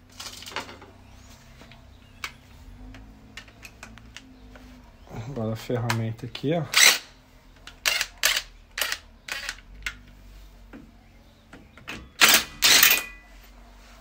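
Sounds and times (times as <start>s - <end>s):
metal parts clicking and knocking: 7.6s - 10.1s, 11.8s - 13.2s.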